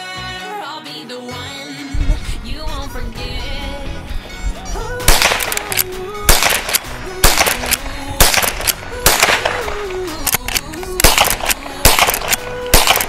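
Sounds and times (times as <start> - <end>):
pop music with singing: 0.0 - 13.0
rifle shots: 5.0 - 13.0.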